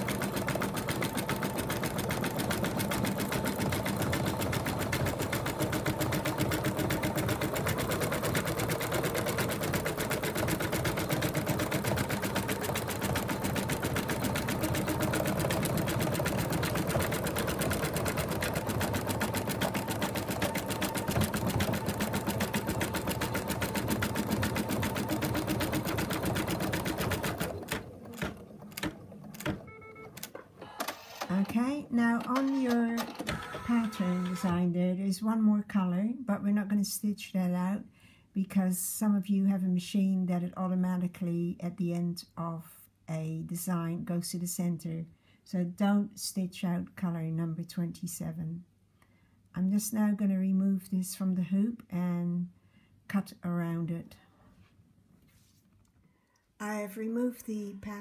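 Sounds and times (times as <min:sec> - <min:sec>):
embroidery machine stitching: 0:00.0 - 0:34.7.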